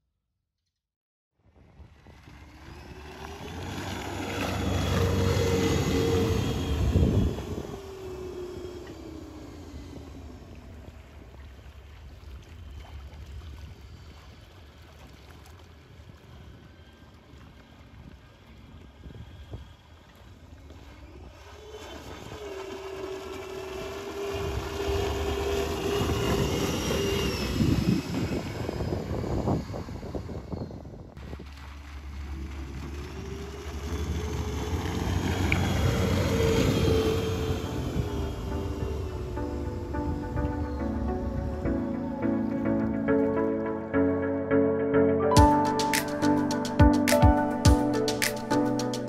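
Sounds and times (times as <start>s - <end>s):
boat wake splashing: 1.4s - 49.0s
water rushing: 2.0s - 28.6s, 31.2s - 44.6s, 45.4s - 49.0s
electric motor whine: 2.3s - 11.4s, 15.8s - 31.1s, 32.1s - 43.8s
low rumble: 31.1s - 44.6s.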